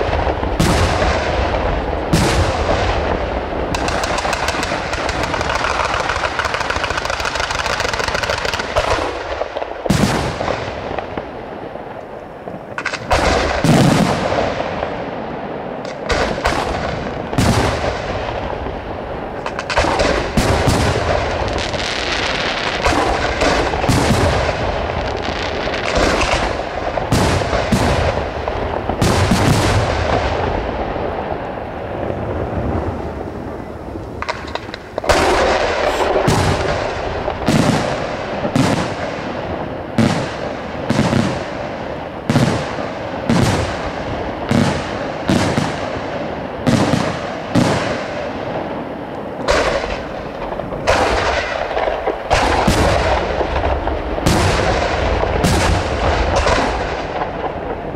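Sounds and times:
firework shells bursting: 0:03.7 - 0:09.1, 0:34.0 - 0:39.4.

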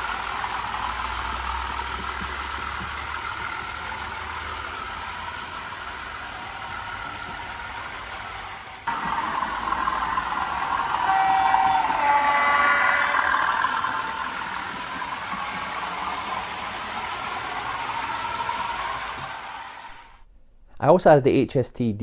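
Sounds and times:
model train diesel engine sound: 0:00.0 - 0:20.2
multi-note train horn: 0:08.9 - 0:16.6.

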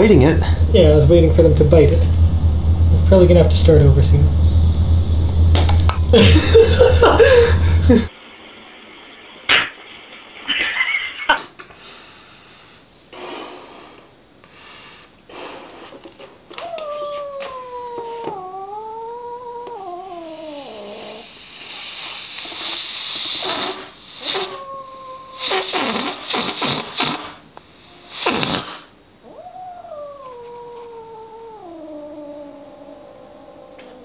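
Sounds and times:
cat hissing and spitting: 0:15.2 - 0:18.4, 0:19.7 - 0:29.0
cat growl-yowling: 0:16.5 - 0:21.4, 0:22.0 - 0:27.2, 0:28.2 - 0:34.0.

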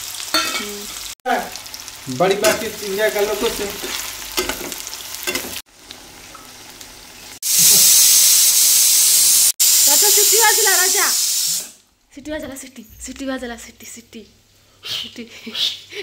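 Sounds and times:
loud steady sizzle: 0:00.0 - 0:11.8
onions frying in hot oil: 0:00.0 - 0:11.8.

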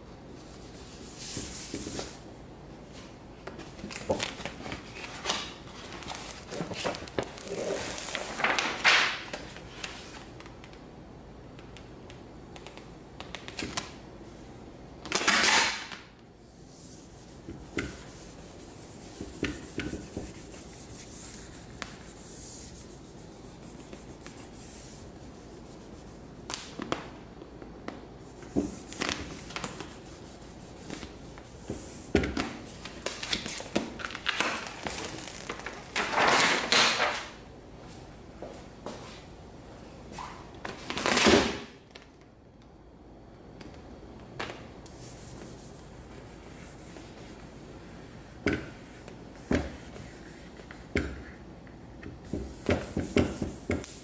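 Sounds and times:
vinyl sheet rustling and crinkling: 0:03.0 - 0:10.5, 0:32.6 - 0:37.4.

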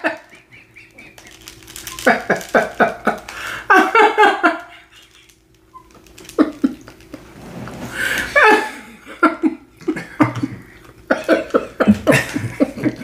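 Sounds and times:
breathy gasps: 0:03.3 - 0:03.7.

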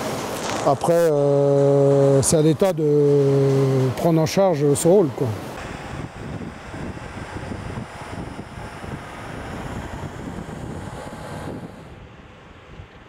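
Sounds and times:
wind buffeting the microphone: 0:05.6 - 0:13.0.

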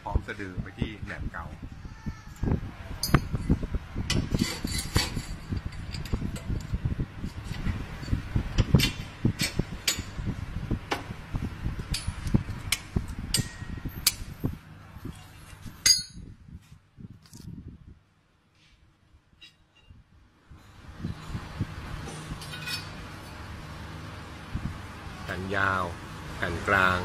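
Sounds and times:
metal parts clinking and knocking: 0:15.8 - 0:16.2.

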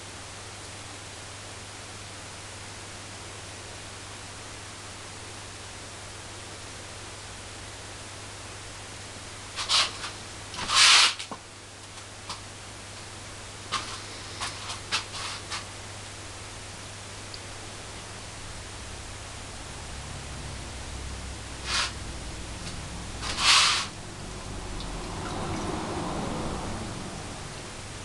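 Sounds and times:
recording hiss: 0:00.0 - 0:28.0
low hum: 0:17.3 - 0:28.0.

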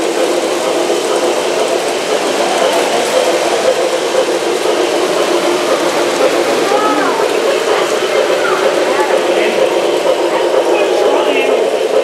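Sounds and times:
model train running on track: 0:00.0 - 0:12.0.

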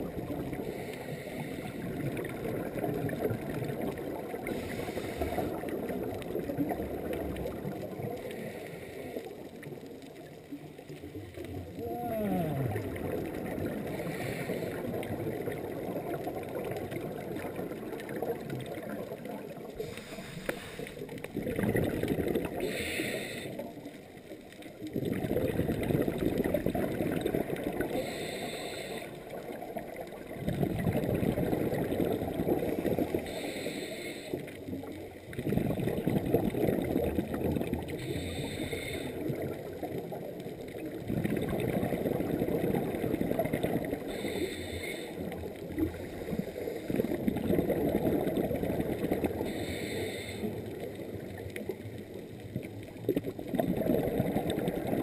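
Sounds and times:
exhaled bubbles burbling: 0:00.0 - 0:00.9, 0:01.6 - 0:08.6, 0:09.4 - 0:22.8, 0:23.6 - 0:33.4, 0:34.4 - 0:44.4, 0:45.2 - 0:49.8, 0:50.4 - 0:55.0
regulator inhalation hiss: 0:04.5 - 0:05.6, 0:19.8 - 0:21.0, 0:22.6 - 0:23.6, 0:28.0 - 0:29.2, 0:33.2 - 0:34.5, 0:38.0 - 0:39.2, 0:44.1 - 0:45.2, 0:49.4 - 0:50.6.

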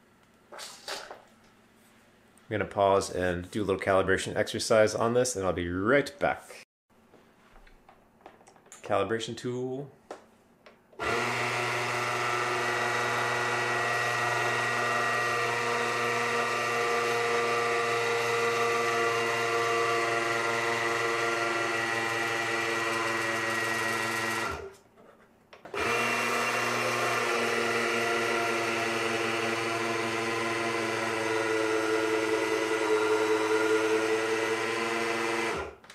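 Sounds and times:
grinder motor humming: 0:11.0 - 0:24.7, 0:25.7 - 0:35.8.

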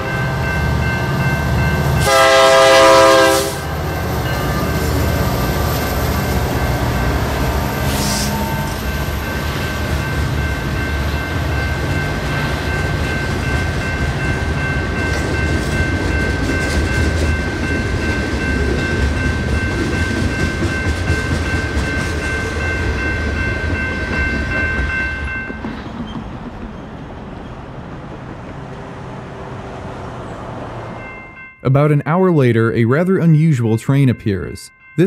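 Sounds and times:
high ringing: 0:00.0 - 0:25.7
train wheels rumbling on rails: 0:00.0 - 0:31.3.

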